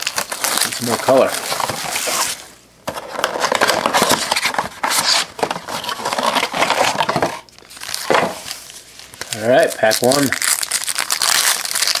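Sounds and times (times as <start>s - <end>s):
foil wrappers crinkling: 0.0s - 2.5s, 7.6s - 12.0s.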